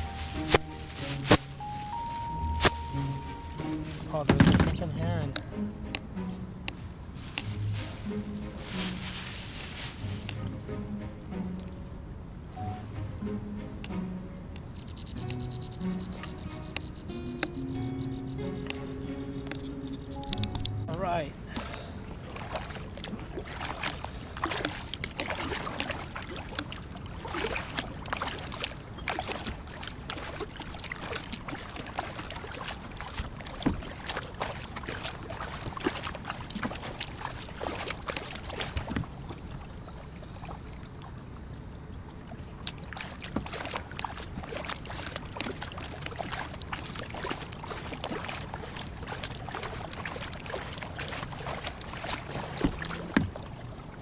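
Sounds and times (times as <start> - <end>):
paddle splashing through water: 0.0 - 5.5, 21.4 - 54.0
water dripping off paddle blades: 0.0 - 10.6, 13.8 - 54.0.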